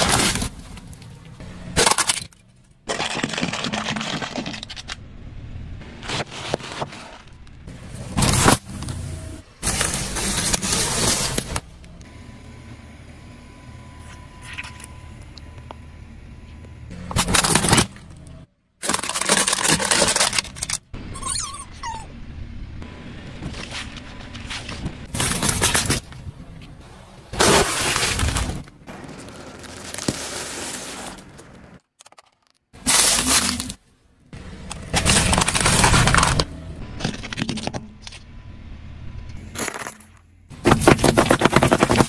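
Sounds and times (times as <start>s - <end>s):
popcorn pack crunching: 2.9s - 5.0s, 18.8s - 20.8s, 32.1s - 33.8s, 34.7s - 37.7s, 40.6s - 42.0s
juice cartons bursting: 40.6s - 42.0s.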